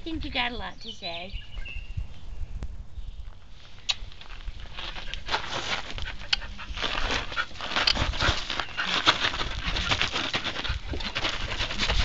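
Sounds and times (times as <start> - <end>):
footsteps on gravel: 4.0 - 12.0
dog panting: 5.0 - 12.0.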